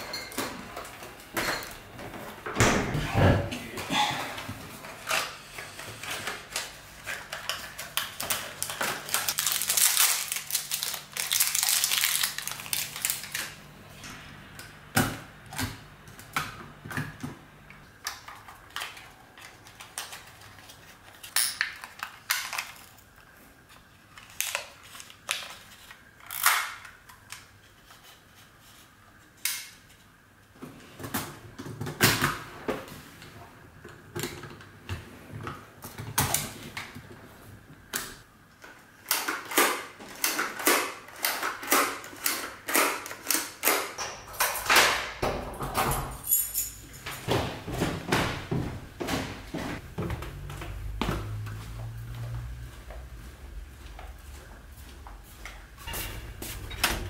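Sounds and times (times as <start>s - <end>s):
cardboard and wrapper crinkling: 6.0s - 13.6s.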